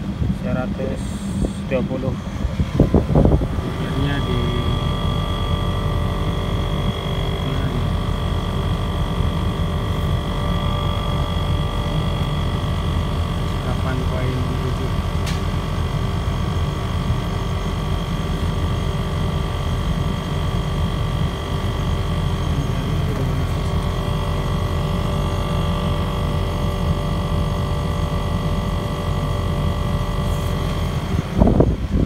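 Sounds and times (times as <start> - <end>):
air conditioner unit humming: 0.0 - 32.0.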